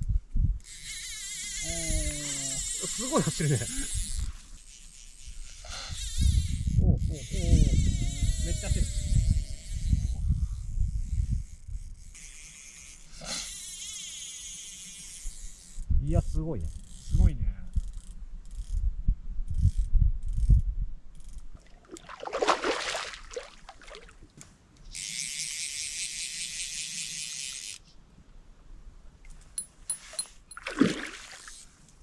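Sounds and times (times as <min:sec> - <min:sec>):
fishing reel ratchet buzzing: 0:00.6 - 0:15.9, 0:16.6 - 0:18.8, 0:24.9 - 0:27.9
fish splashing: 0:21.6 - 0:24.2, 0:30.6 - 0:31.6.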